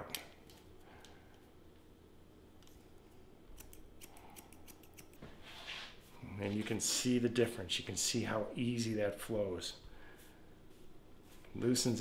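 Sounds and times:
shears snipping hair: 0:03.5 - 0:05.3.

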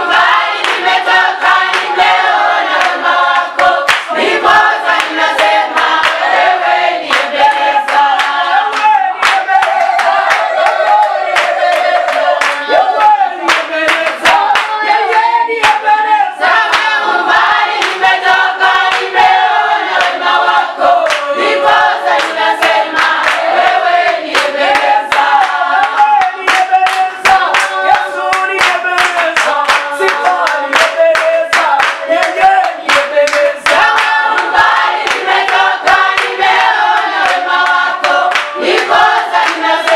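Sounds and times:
congregation singing a cappella: 0:00.0 - 0:39.9
rhythmic hand clapping: 0:00.0 - 0:39.9.

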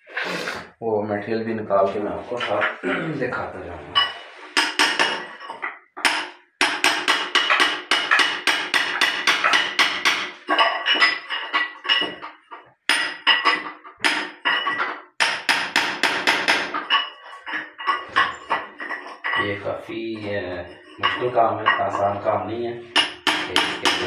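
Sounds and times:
hammer striking steel chisel: 0:04.6 - 0:18.9, 0:22.9 - 0:24.0.

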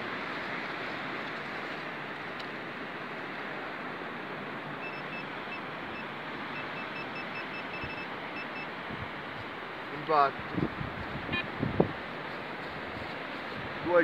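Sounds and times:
wind: 0:00.0 - 0:14.0
metal detector pinpointer beeping: 0:04.8 - 0:08.7.

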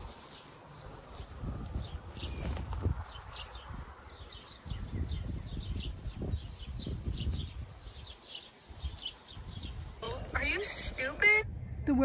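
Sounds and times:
small birds chirping: 0:00.0 - 0:11.3
low uneven rumble: 0:09.4 - 0:12.0.

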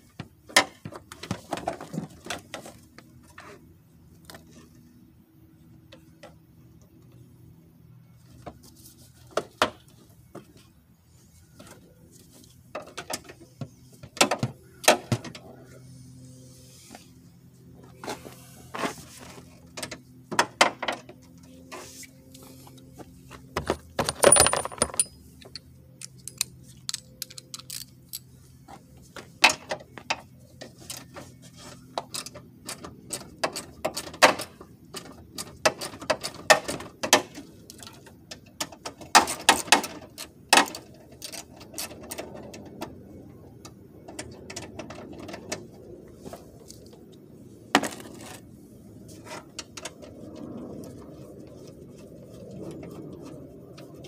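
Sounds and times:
metal tools clicking and clinking: 0:23.6 - 0:28.3.

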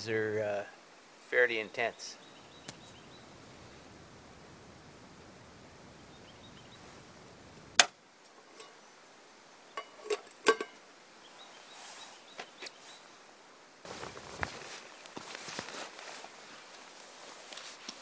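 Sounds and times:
metal pot lid clinking: 0:09.8 - 0:10.8.

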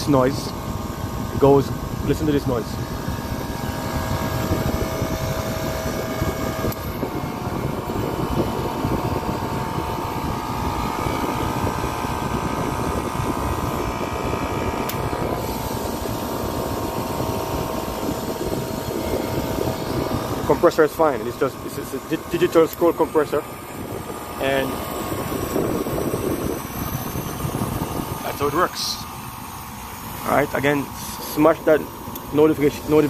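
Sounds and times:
compressor running: 0:00.0 - 0:33.0.

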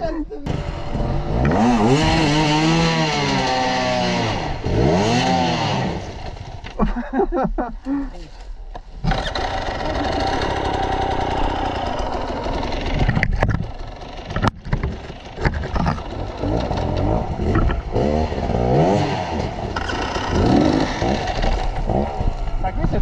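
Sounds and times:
dirt bike engine revving: 0:00.4 - 0:07.1, 0:09.0 - 0:23.0
sharp knocks and clatters: 0:12.9 - 0:18.2.

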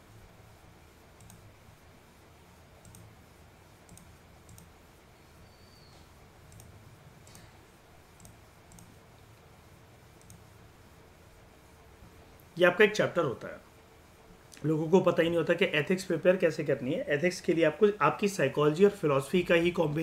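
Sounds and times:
faint computer mouse clicks: 0:01.2 - 0:01.4, 0:02.8 - 0:03.1, 0:03.9 - 0:04.7, 0:05.8 - 0:07.5, 0:08.2 - 0:08.9, 0:10.2 - 0:10.4.

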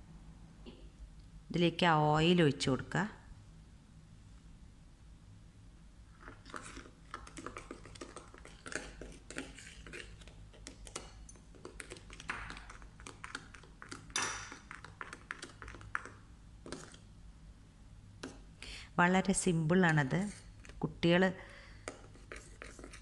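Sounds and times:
spoon beating batter in bowl: 0:06.2 - 0:17.1, 0:21.8 - 0:23.0.

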